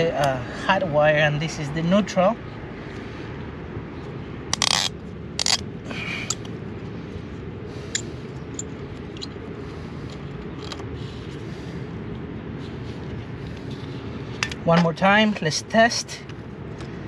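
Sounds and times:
low background rumble: 0:00.0 - 0:17.0
gloved hand scraping wires: 0:04.5 - 0:05.6.

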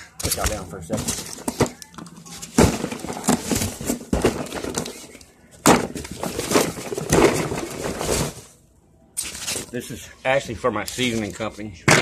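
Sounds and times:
cardboard box rustling and knocking: 0:02.4 - 0:08.4.

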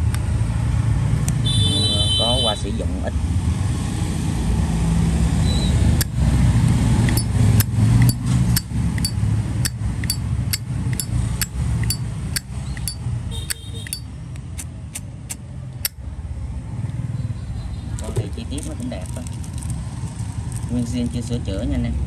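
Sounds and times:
lighter lid clicking open and shut: 0:07.1 - 0:16.0.

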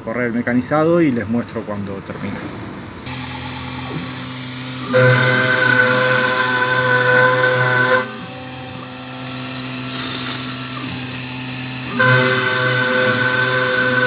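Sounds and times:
router spindle whining: 0:03.1 - 0:14.0.

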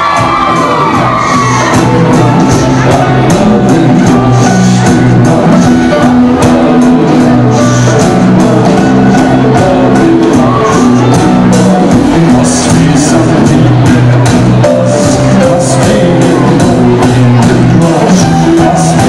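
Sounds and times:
bass guitar: 0:00.0 - 0:19.0
drum-kit beat: 0:00.0 - 0:19.0.

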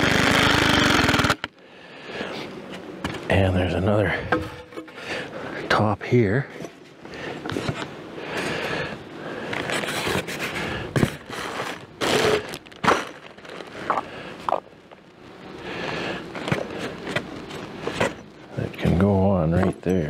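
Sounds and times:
foam scraping against wood: 0:09.5 - 0:14.6.

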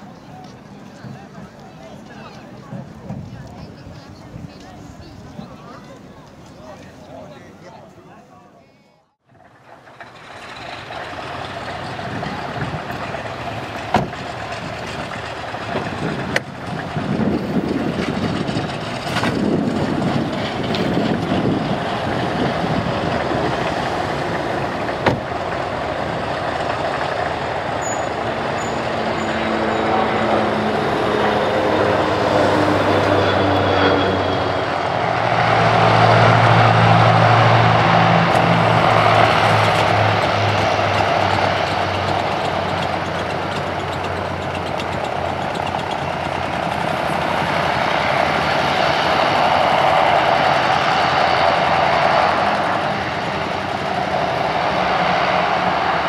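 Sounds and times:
aircraft engines droning: 0:00.0 - 0:56.0
deep propeller hum: 0:09.3 - 0:56.0.

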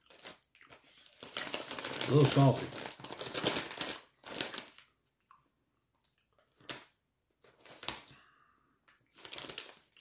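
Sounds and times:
potato chip crunching: 0:00.0 - 0:04.9.

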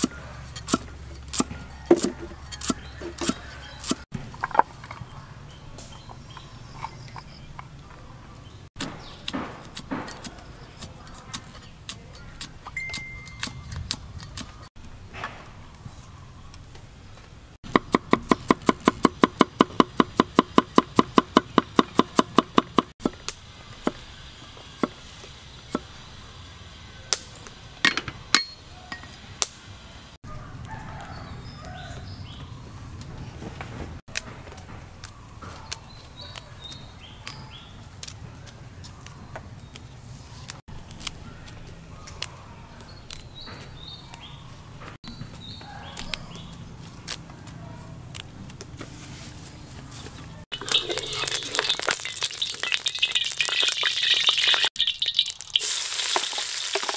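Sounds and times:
cleaver chopping on wooden board: 0:17.6 - 0:23.2.

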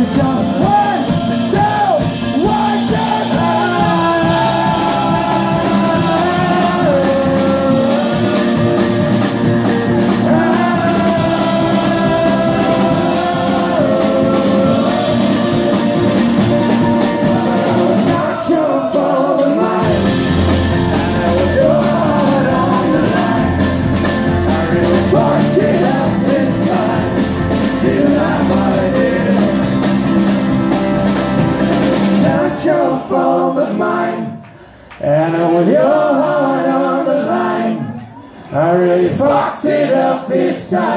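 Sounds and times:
drums: 0:00.0 - 0:34.0, 0:37.8 - 0:40.9
keyboard: 0:00.0 - 0:34.4
lead and harmony singing: 0:00.0 - 0:40.9
electric guitar: 0:19.6 - 0:32.6.

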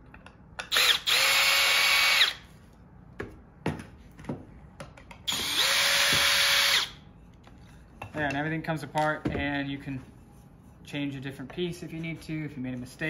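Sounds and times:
cordless drill whining: 0:00.7 - 0:02.4, 0:05.3 - 0:07.0.

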